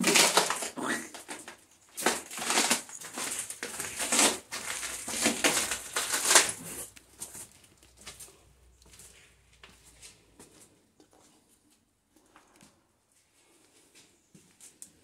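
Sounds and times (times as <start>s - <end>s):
footsteps crunching on grit: 2.0s - 11.3s.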